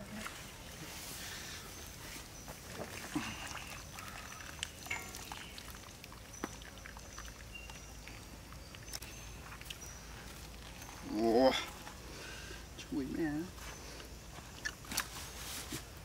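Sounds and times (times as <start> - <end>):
hot water pouring and dripping: 2.6 - 10.9.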